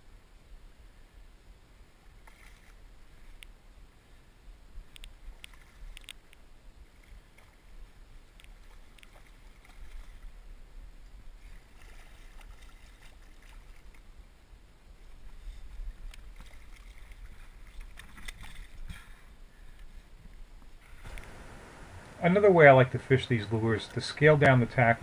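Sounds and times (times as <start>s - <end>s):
fish splashing in water: 8.5s - 10.4s, 11.4s - 14.1s.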